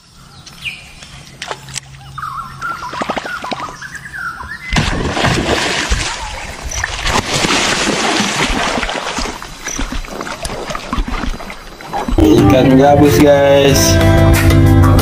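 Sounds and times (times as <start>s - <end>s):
water splashing and churning: 1.2s - 12.6s.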